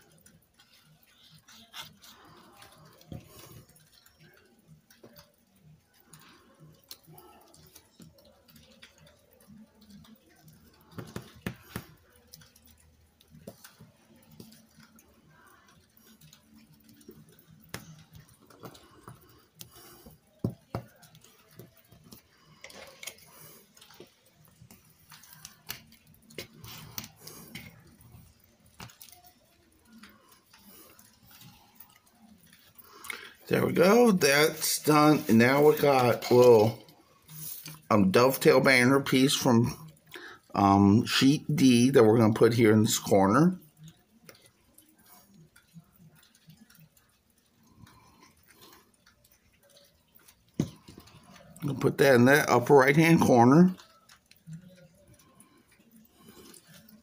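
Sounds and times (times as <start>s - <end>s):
small taps and clicks: 6.1s - 15.0s.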